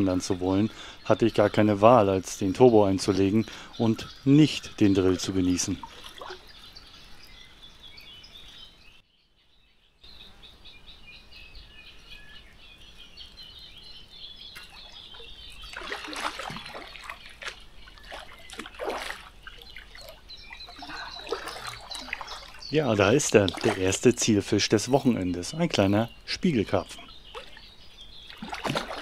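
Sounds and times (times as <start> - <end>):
small birds chirping: 0.0 - 29.0
water splashing: 2.9 - 7.2, 14.5 - 29.0.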